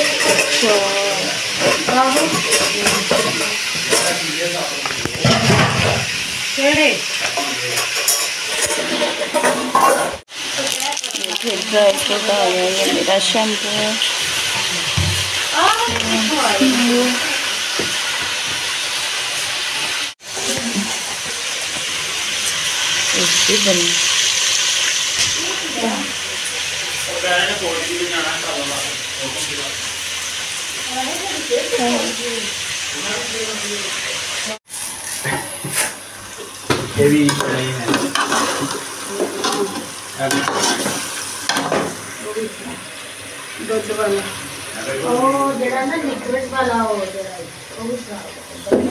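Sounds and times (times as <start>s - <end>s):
metal spoon scraping a pot: 0.0s - 0.8s, 7.3s - 10.2s
chicken sizzling in hot oil: 0.0s - 48.9s.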